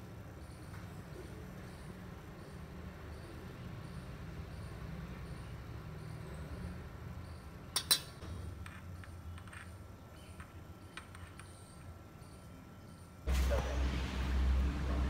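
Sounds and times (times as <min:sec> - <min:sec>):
metal spoon clinking on cups: 0:07.7 - 0:11.8.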